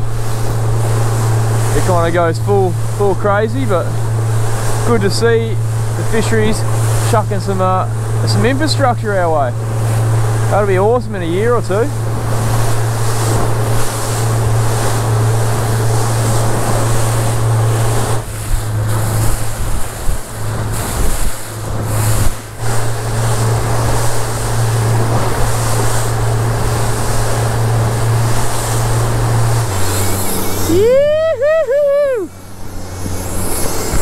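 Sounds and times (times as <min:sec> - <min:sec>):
boat engine drone: 0:00.0 - 0:34.0
water splashing off hull: 0:00.0 - 0:34.0
wind buffeting microphone: 0:00.0 - 0:34.0.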